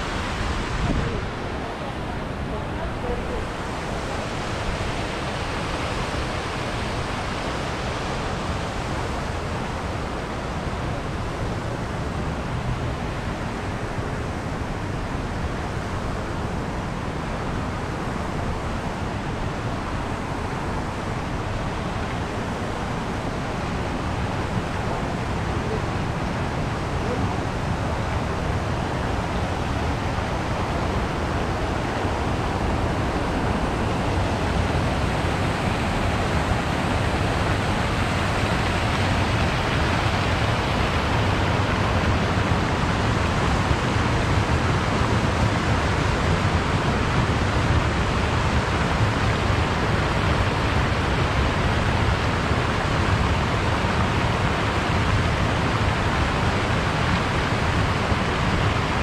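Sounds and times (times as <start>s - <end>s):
fountain jets splashing into pool: 34.4s - 59.0s.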